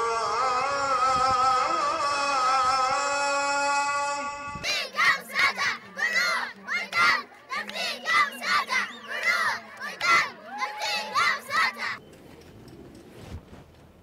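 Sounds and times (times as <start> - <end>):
children shouting and chanting: 3.5 - 12.0.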